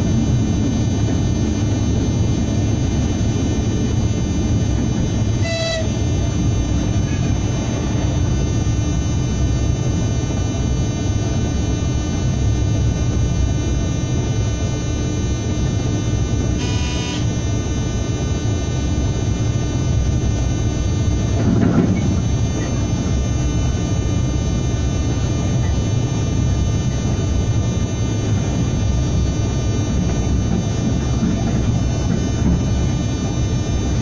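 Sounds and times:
constant high whine: 0.0s - 34.0s
locomotive rumble: 0.0s - 34.0s
short electronic beep: 5.4s - 6.0s, 16.6s - 17.3s.

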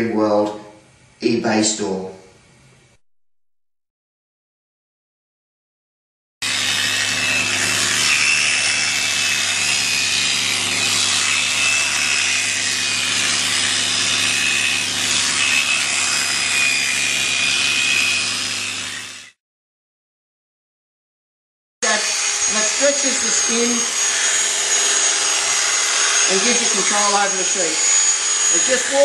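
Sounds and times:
electric clipper buzzing: 6.4s - 19.4s, 21.8s - 29.0s.

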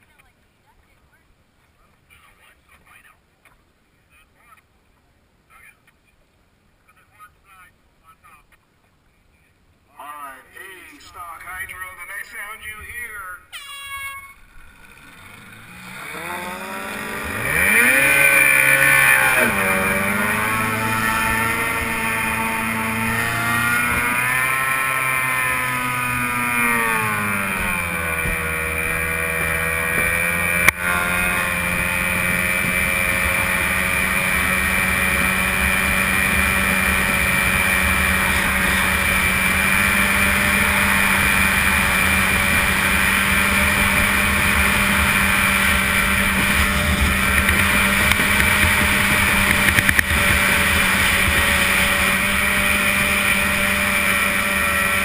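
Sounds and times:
outboard racing engine running hard: 14.8s - 55.0s
wind and water noise: 16.1s - 55.0s.

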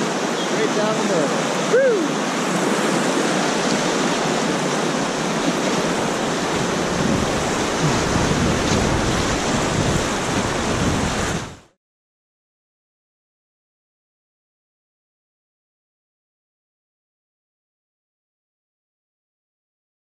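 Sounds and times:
whitewater rushing: 0.0s - 11.7s.

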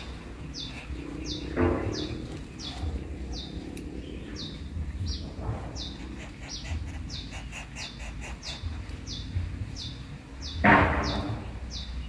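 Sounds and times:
low rumble: 0.0s - 7.5s
bird chirping: 0.0s - 12.0s.

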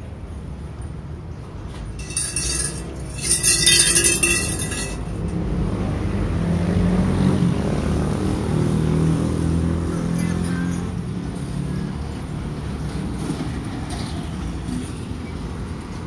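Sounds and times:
bright metallic rattling: 1.9s - 5.4s.

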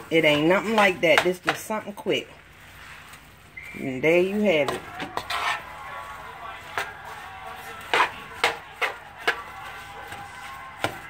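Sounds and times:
spatula scraping a pan: 0.0s - 11.0s.

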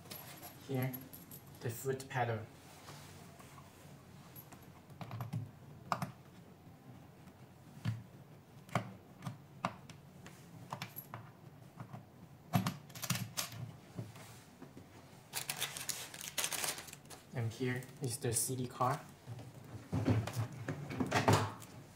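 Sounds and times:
cables being handled: 12.9s - 20.6s.

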